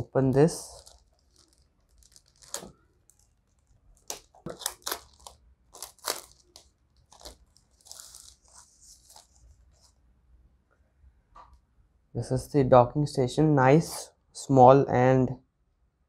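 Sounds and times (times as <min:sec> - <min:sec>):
plastic wrapping crinkling: 0:00.0 - 0:10.0.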